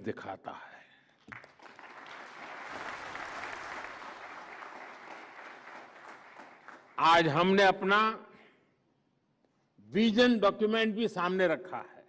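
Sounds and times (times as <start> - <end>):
audience applauding: 1.3 - 7.2.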